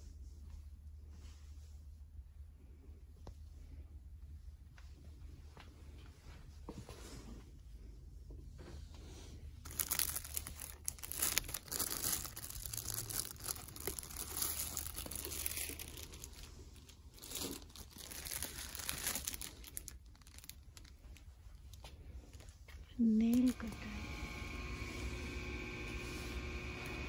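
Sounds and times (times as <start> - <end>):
plastic packaging crinkling: 9.6 - 27.0.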